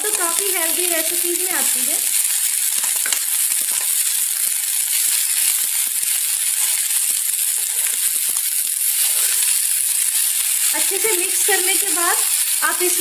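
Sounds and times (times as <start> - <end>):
vegetables sizzling in hot oil: 0.0 - 13.0
spatula scraping a pan: 6.4 - 10.4.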